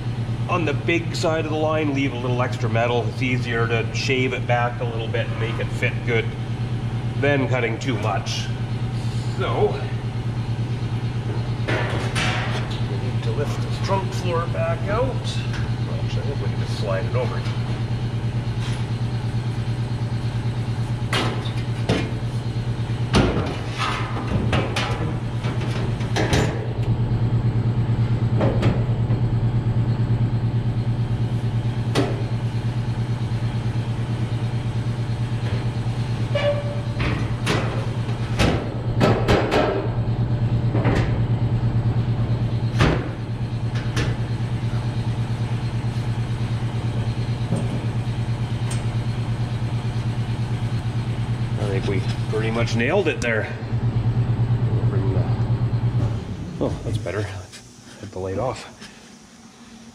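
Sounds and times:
low hum: 0:39.6 - 0:59.9.

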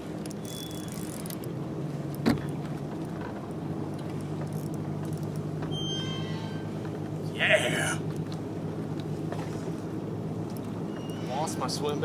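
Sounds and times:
fishing reel whirring: 0:00.2 - 0:01.4.

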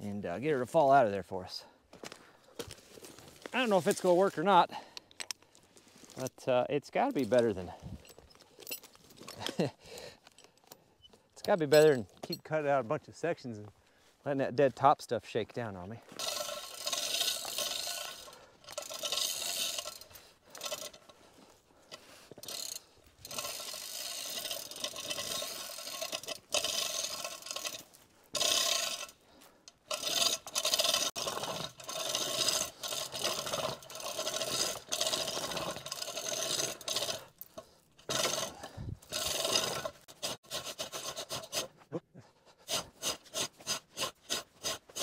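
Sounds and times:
chain running through hoist: 0:11.4 - 0:12.1, 0:16.1 - 0:21.1, 0:22.4 - 0:29.2, 0:29.9 - 0:41.7.

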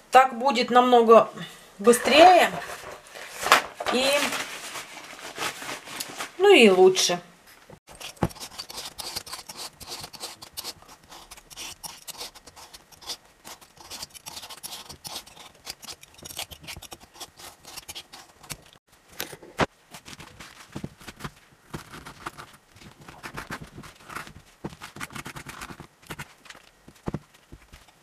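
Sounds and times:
vegetable peeler scraping squash: 0:07.9 - 0:18.8.

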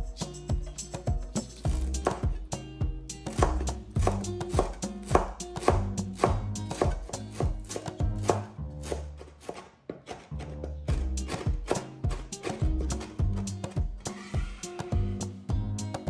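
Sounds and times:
background music: 0:00.0 - 0:09.2, 0:10.3 - 0:16.0
knife chopping on cutting board: 0:01.6 - 0:02.4, 0:03.2 - 0:15.2.

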